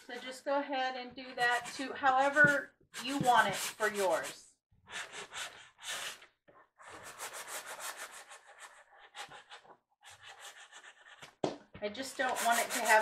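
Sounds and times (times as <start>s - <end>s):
sanding block rubbing wood: 1.4s - 4.2s, 6.8s - 11.0s, 12.2s - 13.0s.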